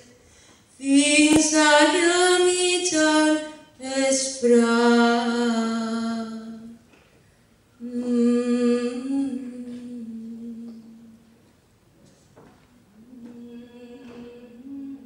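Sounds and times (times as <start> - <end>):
person singing chant-like notes: 12.9 - 15.0.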